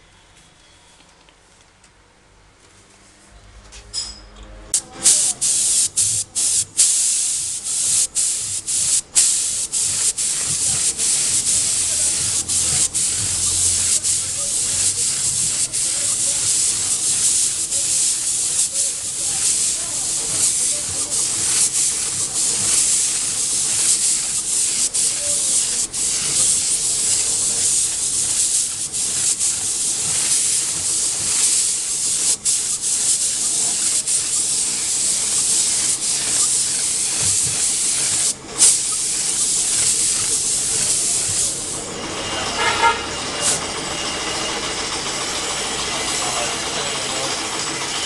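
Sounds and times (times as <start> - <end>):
paint spray gun hissing: 4.8 - 42.0.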